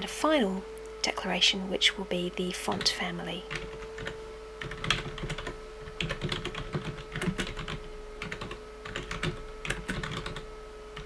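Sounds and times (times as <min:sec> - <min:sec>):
typing on keyboard: 0:03.5 - 0:10.4.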